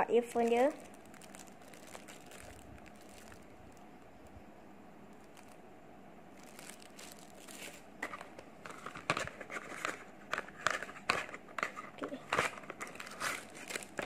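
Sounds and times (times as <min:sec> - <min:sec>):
plastic and cardboard rustling: 0:00.0 - 0:04.1, 0:05.1 - 0:05.6, 0:06.4 - 0:14.0.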